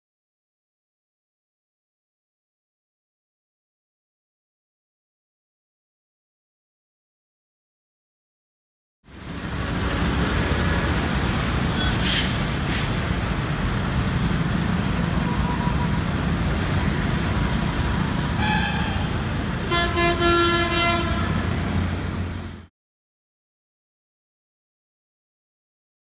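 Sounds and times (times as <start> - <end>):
vehicle and traffic rumble: 9.1 - 22.7
vehicle horn honking: 18.4 - 21.6.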